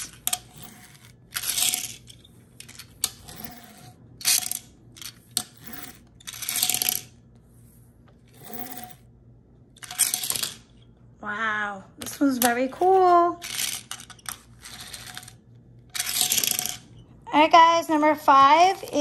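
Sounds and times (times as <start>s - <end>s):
toy car rattling on countertop: 0.0s - 7.2s, 12.8s - 16.9s.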